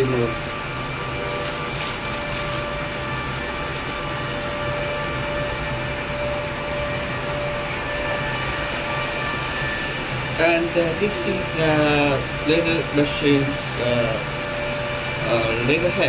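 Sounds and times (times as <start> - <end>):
plastic packaging crinkling: 0.0 - 3.5
cooling fan whirring: 0.0 - 16.0.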